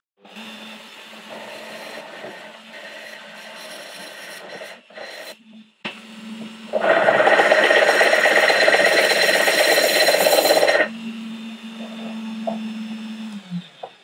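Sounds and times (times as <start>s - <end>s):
drill bit grinding through glass: 0.3s - 5.6s, 6.6s - 14.0s
drill press motor hum: 5.3s - 14.0s.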